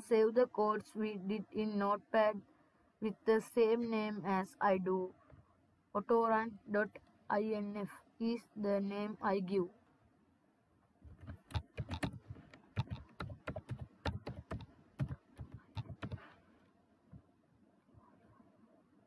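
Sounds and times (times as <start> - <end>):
keyboard typing: 11.2 - 16.3.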